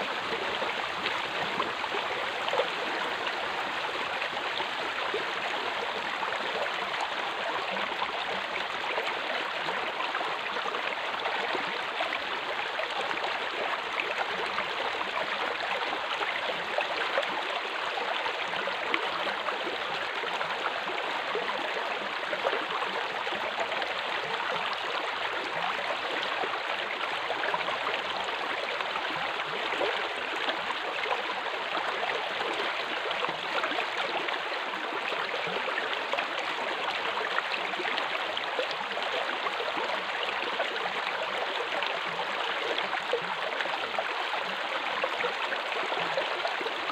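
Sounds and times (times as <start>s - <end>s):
water rushing along a flume: 0.0s - 46.9s.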